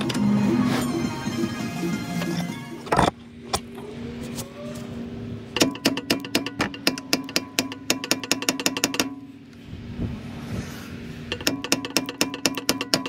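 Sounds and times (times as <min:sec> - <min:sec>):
background music: 0:00.0 - 0:02.9
ratchet wrench clicking: 0:05.6 - 0:09.2, 0:11.3 - 0:13.0.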